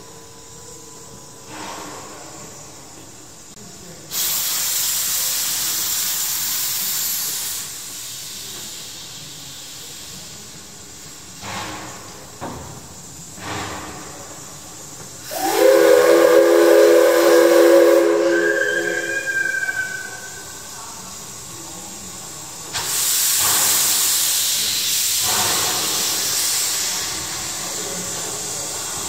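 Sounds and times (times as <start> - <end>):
steam locomotive hissing: 0.0 - 29.0
chord steam whistle: 15.2 - 20.6.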